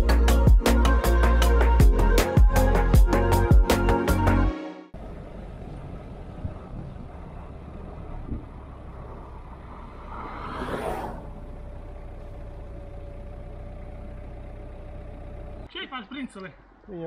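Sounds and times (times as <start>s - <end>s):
engine low rumble: 0.0s - 17.0s
brief rushing swell: 9.8s - 11.5s.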